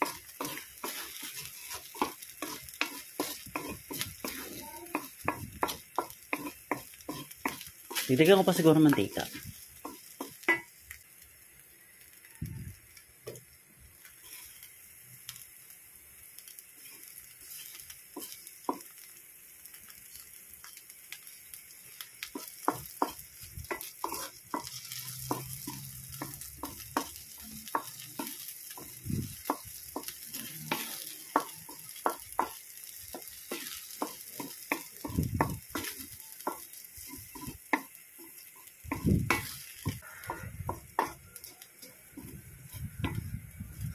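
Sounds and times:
wooden spatula scraping a pan: 0:00.0 - 0:10.6, 0:14.2 - 0:14.7, 0:16.8 - 0:18.9, 0:22.2 - 0:43.9
food frying in oil: 0:00.0 - 0:43.9.

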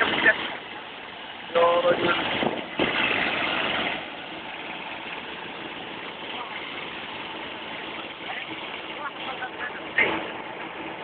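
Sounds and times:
road traffic: 0:00.0 - 0:11.0
vehicle engine running: 0:00.0 - 0:11.0
faint voices: 0:05.7 - 0:11.0.

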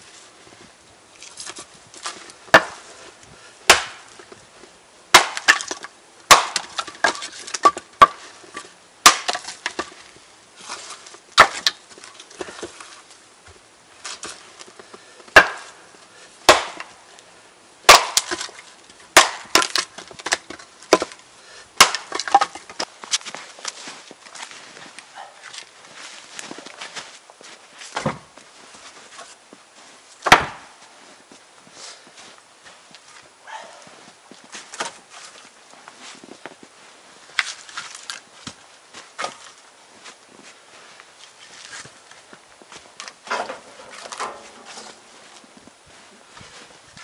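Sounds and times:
axe striking wood: 0:02.5 - 0:02.8, 0:03.7 - 0:04.2, 0:05.1 - 0:10.0, 0:11.4 - 0:11.8, 0:15.3 - 0:15.8, 0:16.5 - 0:17.0, 0:17.9 - 0:18.6, 0:19.2 - 0:21.2, 0:21.8 - 0:22.9, 0:28.0 - 0:28.2, 0:30.2 - 0:30.8, 0:43.3 - 0:45.0
wood cracking as it splits: 0:03.7 - 0:04.4, 0:05.1 - 0:10.0, 0:10.6 - 0:13.0, 0:15.3 - 0:15.8, 0:16.5 - 0:17.0, 0:17.9 - 0:21.2, 0:21.8 - 0:23.7, 0:30.2 - 0:30.7, 0:43.0 - 0:45.0
wood pieces knocking together: 0:05.1 - 0:10.0, 0:17.9 - 0:21.2, 0:21.8 - 0:22.9, 0:43.0 - 0:45.0.

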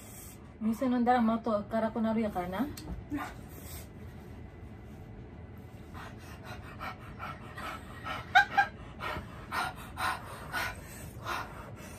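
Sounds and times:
person panting hard: 0:05.9 - 0:11.9.

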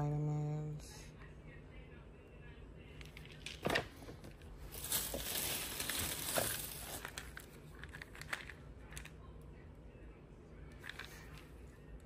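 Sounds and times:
paper bag rustling: 0:04.6 - 0:07.5.

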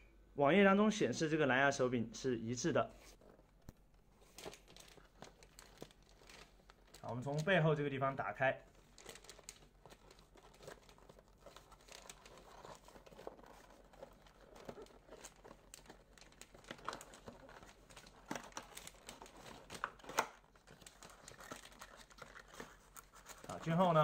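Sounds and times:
cardboard box crinkling: 0:04.2 - 0:07.6, 0:08.7 - 0:24.0.

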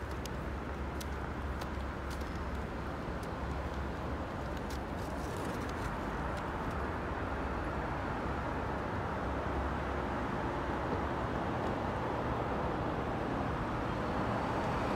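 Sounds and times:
distant traffic: 0:00.0 - 0:14.9.

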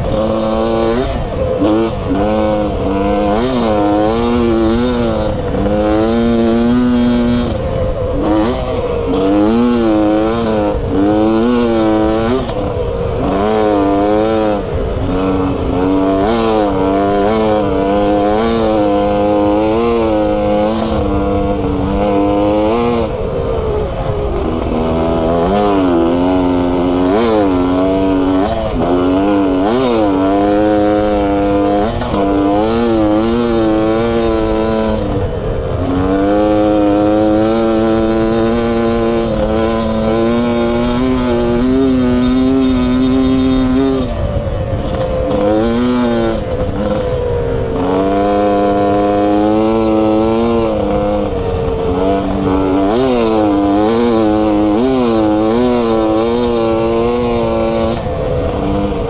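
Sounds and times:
motorbike engine revving: 0:00.0 - 0:59.0.

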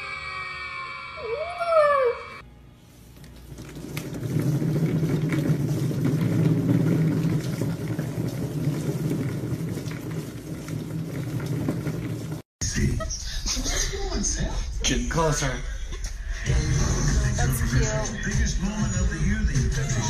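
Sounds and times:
exercise wheel rumbling: 0:03.2 - 0:12.5.

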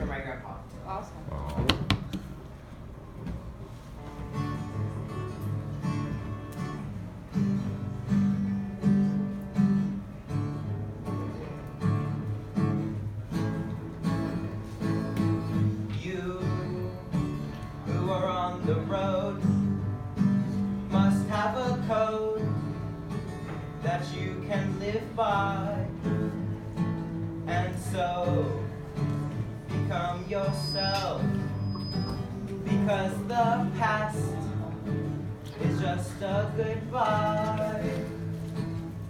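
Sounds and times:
acoustic guitar strumming: 0:04.1 - 0:39.0.

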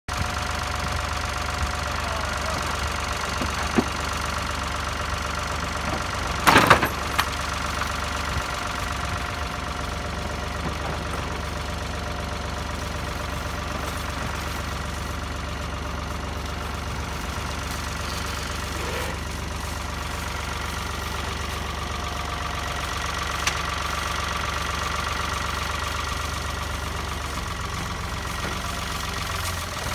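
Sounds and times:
tractor engine idling: 0:00.1 - 0:29.9
loud clatter: 0:05.9 - 0:08.0.

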